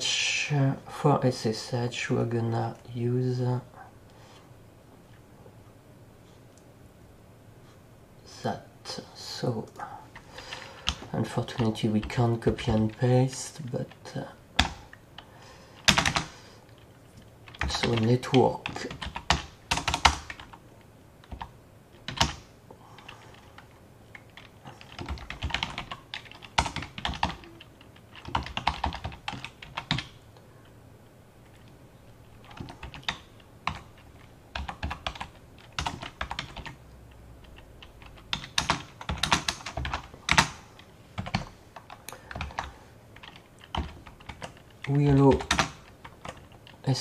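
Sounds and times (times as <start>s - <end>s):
typing on a keyboard: 15.8s - 16.3s, 17.5s - 20.6s, 21.2s - 22.4s, 23.0s - 30.2s, 32.4s - 36.8s, 37.4s - 46.8s.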